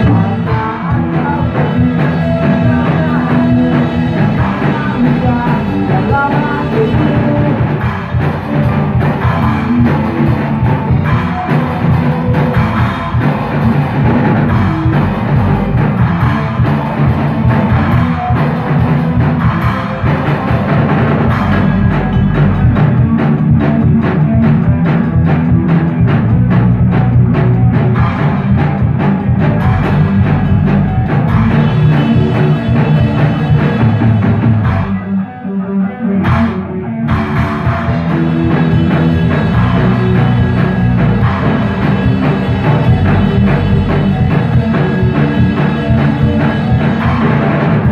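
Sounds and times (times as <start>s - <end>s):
cymbals: 0.0s - 35.0s
band playing live: 0.0s - 47.9s
bass guitar: 0.0s - 47.9s
drum kit: 0.0s - 47.9s
electric guitar: 0.0s - 47.9s.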